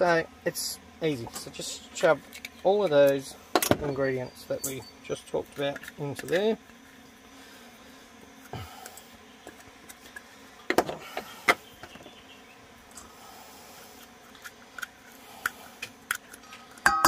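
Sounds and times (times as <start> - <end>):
cups clicking on metal bowl: 16.8 - 17.0.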